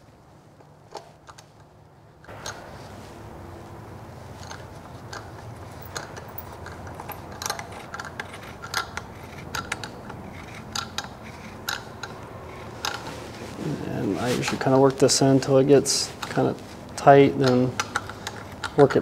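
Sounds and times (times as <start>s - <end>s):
faint steady hum: 0.0s - 19.0s
hand tap clicking and scraping: 4.4s - 13.2s, 16.2s - 19.0s.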